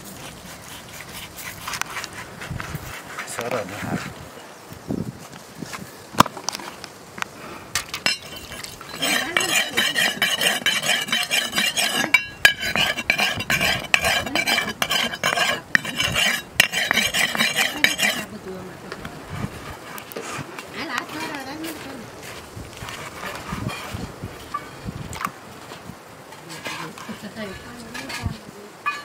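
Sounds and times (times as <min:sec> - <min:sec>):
metal blade scraping and clinking: 0:07.9 - 0:18.3.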